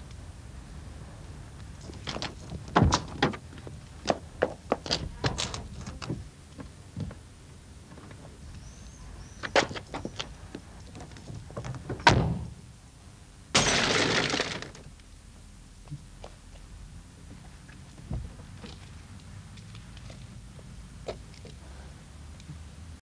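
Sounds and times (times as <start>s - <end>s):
window glass shattering: 13.6s - 14.8s.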